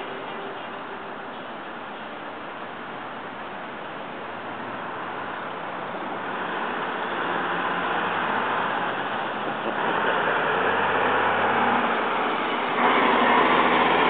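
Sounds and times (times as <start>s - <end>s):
cars passing: 4.0s - 14.0s.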